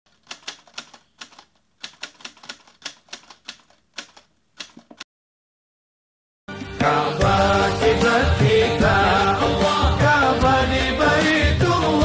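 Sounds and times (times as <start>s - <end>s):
sharp clicks: 0.2s - 5.0s.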